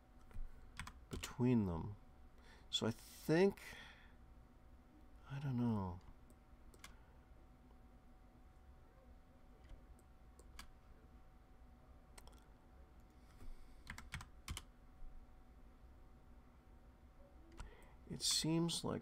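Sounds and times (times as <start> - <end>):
faint low hum: 0.0 - 19.0
computer keyboard clicks: 6.7 - 7.0, 12.2 - 12.5, 13.8 - 14.7, 17.5 - 17.8.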